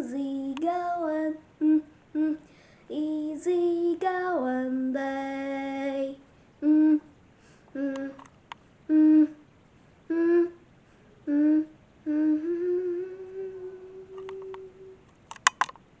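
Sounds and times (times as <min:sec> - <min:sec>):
person humming a tune: 0:00.0 - 0:03.0, 0:05.4 - 0:07.1, 0:07.7 - 0:08.3, 0:08.9 - 0:09.5, 0:10.1 - 0:10.6, 0:11.2 - 0:15.0
sharp clicks: 0:14.2 - 0:15.8.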